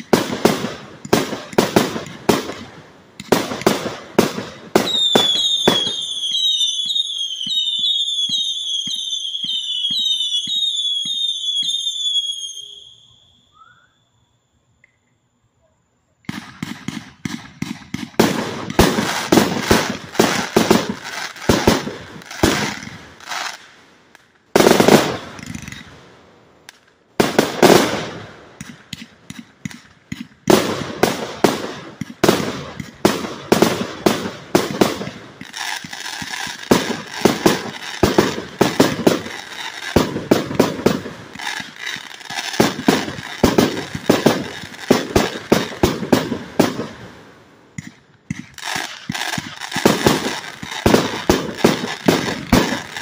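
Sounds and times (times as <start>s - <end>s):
firework aerial bursts: 16.3s - 53.0s.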